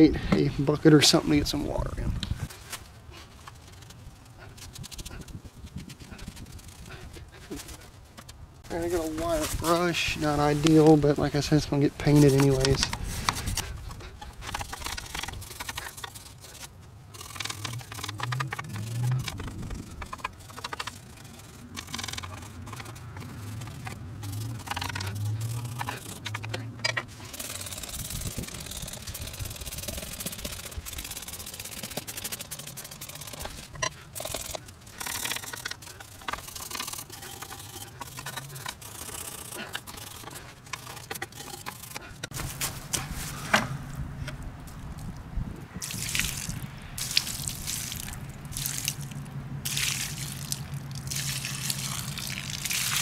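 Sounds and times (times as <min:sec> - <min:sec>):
wire brush scrubbing metal: 0:14.2 - 0:42.5
spray bottle squirting: 0:27.2 - 0:42.0, 0:45.8 - 0:49.0
water splashing: 0:45.8 - 0:53.0.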